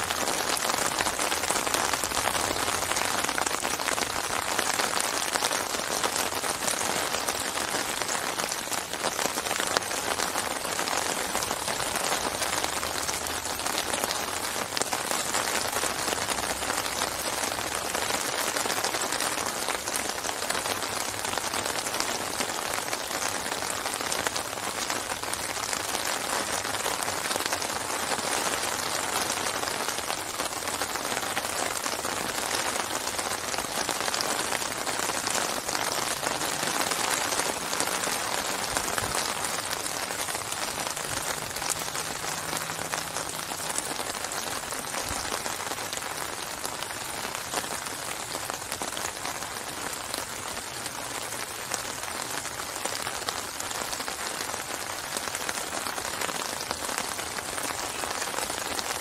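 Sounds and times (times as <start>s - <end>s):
rain falling on water: 0.0s - 59.0s.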